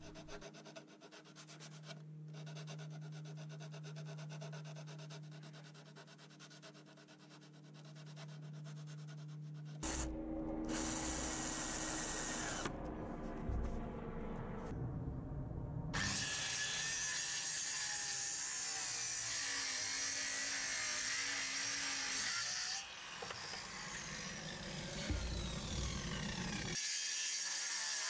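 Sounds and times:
sanding block rasping on wood: 0.1s - 9.9s
loud tool noise: 9.8s - 12.8s, 16.0s - 28.0s.

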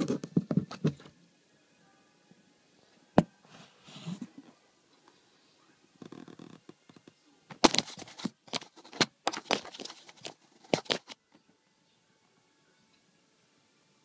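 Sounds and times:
cat rubbing against a phone: 3.5s - 4.4s.

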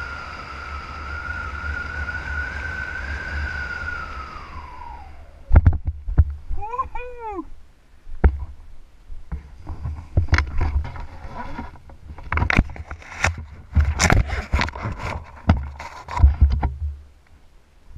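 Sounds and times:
wind buffeting microphone: 0.0s - 7.2s.

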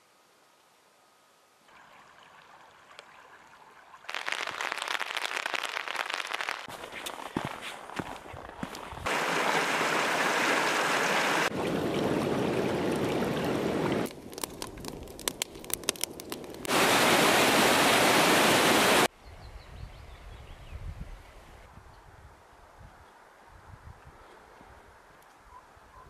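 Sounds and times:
campfire crackling and popping: 4.1s - 7.5s, 11.4s - 17.7s
river rushing over rocks: 9.1s - 14.0s, 16.7s - 19.1s.

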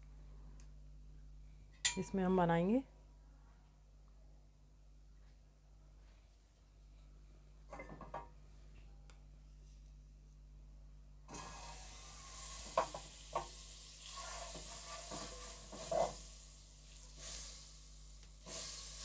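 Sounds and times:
butter sizzling in a pot: 11.3s - 19.0s
wooden spatula scraping a pot: 14.1s - 16.3s.

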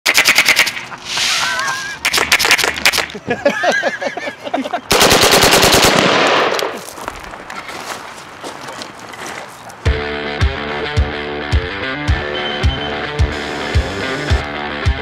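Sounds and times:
airsoft shotgun full-auto bursts: 0.1s - 0.9s, 4.9s - 6.7s
people whooping and laughing: 1.0s - 2.0s.

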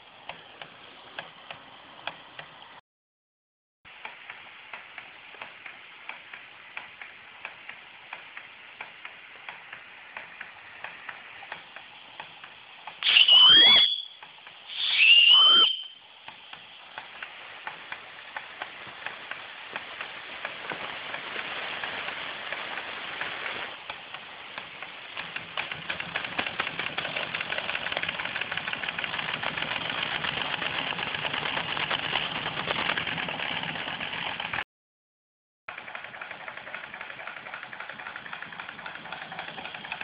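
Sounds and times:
steam engine running: 3.9s - 34.6s, 35.7s - 40.0s
steam whistle blast: 13.0s - 16.0s.

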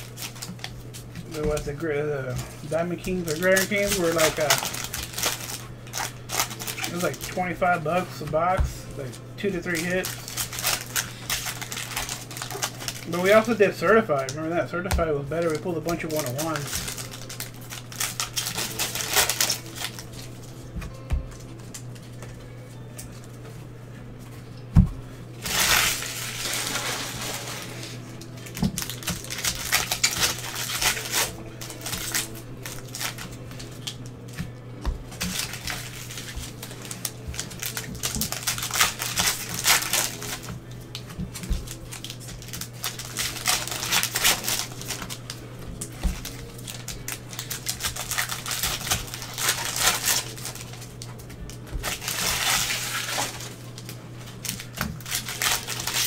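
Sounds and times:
foil packs crinkling and tearing: 0.0s - 20.6s, 25.4s - 56.0s
cards rustling and shuffling: 0.0s - 23.6s, 25.4s - 56.0s
low electrical hum: 0.0s - 56.0s.

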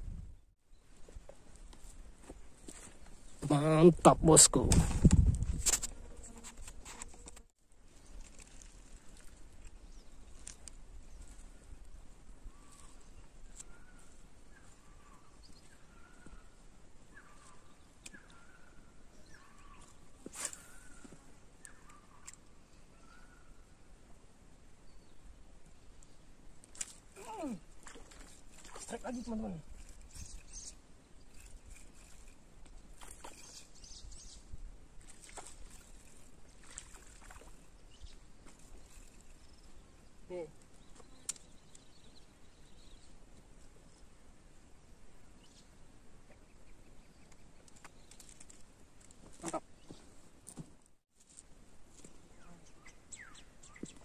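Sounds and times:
small animal calling: 49.3s - 49.9s.

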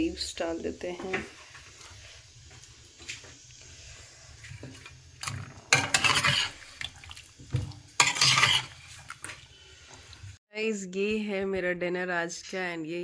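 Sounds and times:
kitchen clatter: 4.4s - 9.4s
water splashing: 5.2s - 10.4s.

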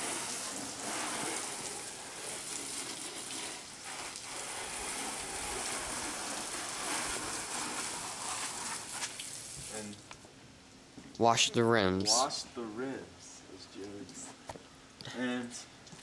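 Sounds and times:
hose water spraying on car: 0.0s - 10.1s.

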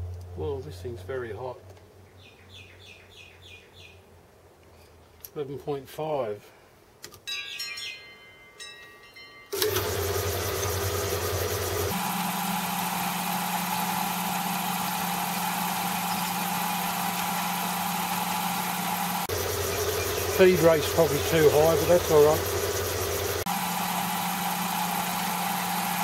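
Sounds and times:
lathe motor humming: 9.6s - 26.0s.

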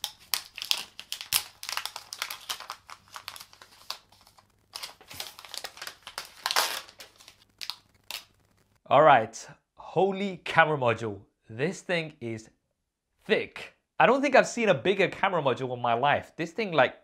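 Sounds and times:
plastic film peeling and crinkling: 0.0s - 8.7s.

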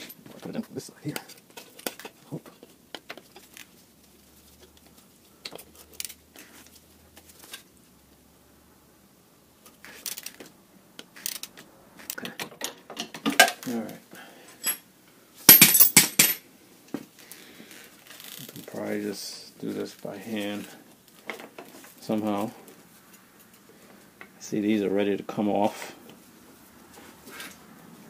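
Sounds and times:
metal tools clinking: 0.0s - 0.3s, 14.6s - 14.8s, 15.5s - 16.4s.

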